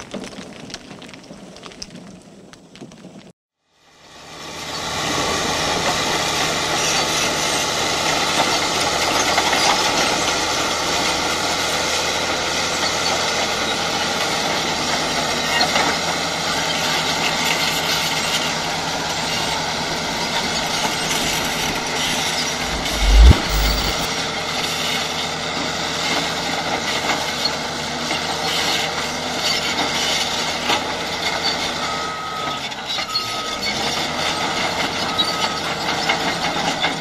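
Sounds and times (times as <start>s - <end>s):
tracks and rocks clattering: 0.0s - 3.3s.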